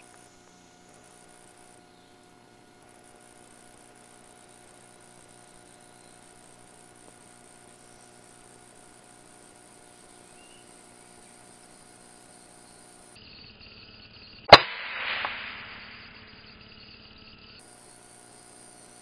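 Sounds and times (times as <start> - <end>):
rifle shot: 14.5 - 16.3.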